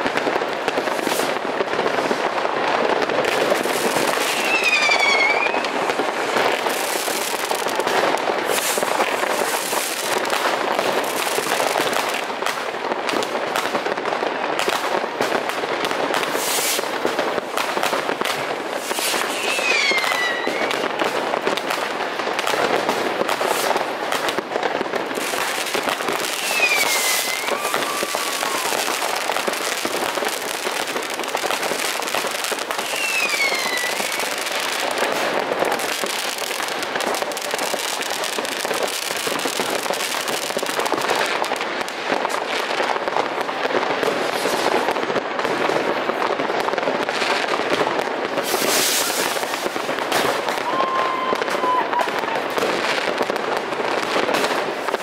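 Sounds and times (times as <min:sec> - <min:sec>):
fireworks crackling and banging: 0:00.0 - 0:55.0
falling whistles: 0:04.3 - 0:05.8, 0:19.3 - 0:20.7, 0:26.4 - 0:28.7, 0:32.8 - 0:34.2.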